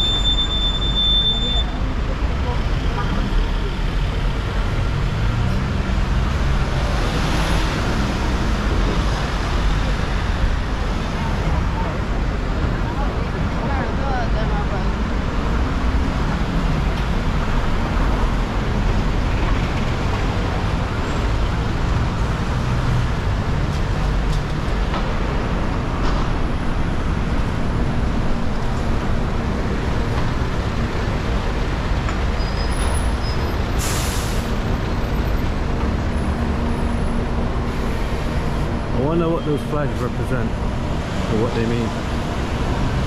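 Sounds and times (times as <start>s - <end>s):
city road traffic: 0.0s - 43.0s
air brake hiss: 33.8s - 34.6s.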